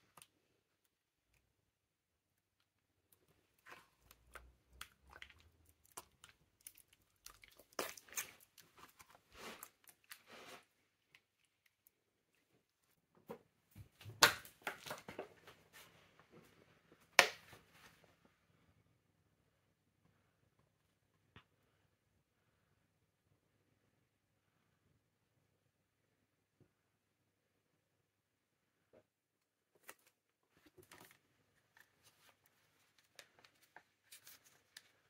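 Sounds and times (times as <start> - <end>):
wet squelching of mashed banana: 3.2 - 11.9.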